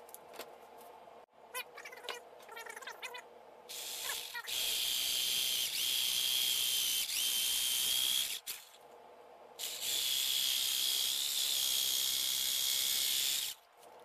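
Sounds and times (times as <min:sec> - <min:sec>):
jigsaw cutting plastic pipe: 0:03.7 - 0:08.8, 0:09.6 - 0:13.6.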